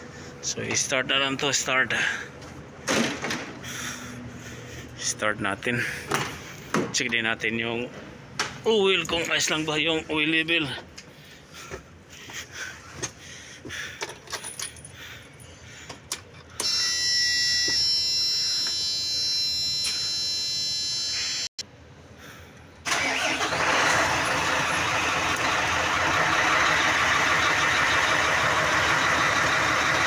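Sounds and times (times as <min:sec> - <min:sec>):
diesel engine idling: 0:22.8 - 0:30.0
starter motor whine: 0:22.9 - 0:30.0.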